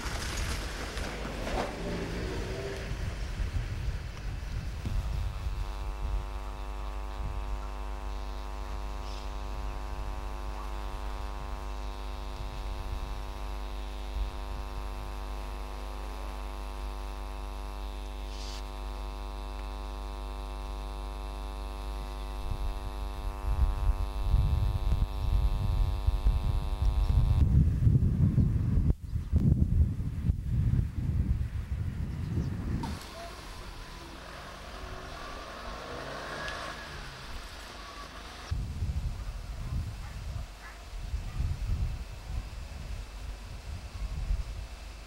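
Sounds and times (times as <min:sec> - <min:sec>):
wind on microphone: 0:00.0 - 0:07.8, 0:22.3 - 0:33.1, 0:38.5 - 0:45.0
electrical hum: 0:00.0 - 0:45.0.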